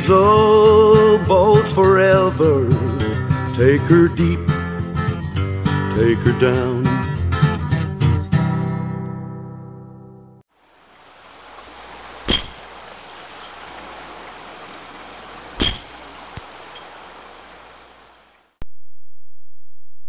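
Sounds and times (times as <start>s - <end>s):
steady hiss: 10.5s - 18.6s
bell strikes ringing: 11.5s - 17.8s.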